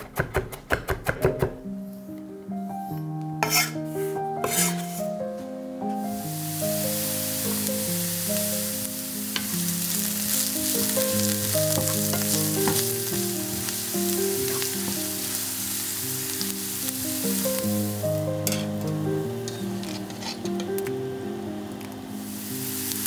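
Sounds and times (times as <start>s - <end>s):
soft background music: 1.2s - 23.0s
onion sizzling in oil: 3.4s - 3.8s, 4.4s - 5.1s, 6.0s - 23.0s
wooden spatula scraping a pan: 3.4s - 5.2s, 19.4s - 20.8s.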